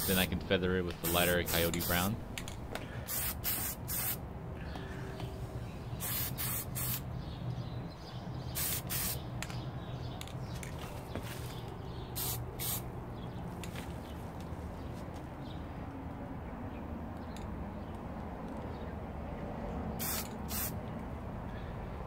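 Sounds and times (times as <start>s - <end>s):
spray paint can hissing: 1.0s - 2.1s, 3.1s - 4.2s, 6.0s - 7.1s, 8.5s - 9.2s, 12.2s - 12.8s, 20.0s - 20.8s.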